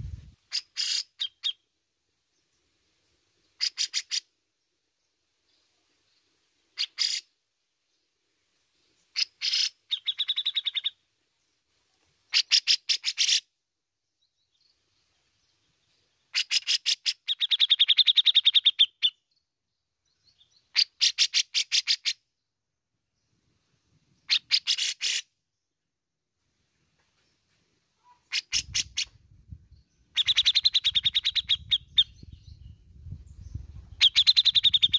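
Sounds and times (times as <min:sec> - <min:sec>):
bird harsh chattering calls: 0:00.5 - 0:01.6, 0:03.6 - 0:04.3, 0:06.8 - 0:07.3, 0:09.2 - 0:10.9, 0:12.3 - 0:13.4, 0:16.3 - 0:19.2, 0:20.7 - 0:22.2, 0:24.2 - 0:25.3, 0:28.0 - 0:29.1, 0:30.1 - 0:32.2, 0:34.0 - 0:34.9.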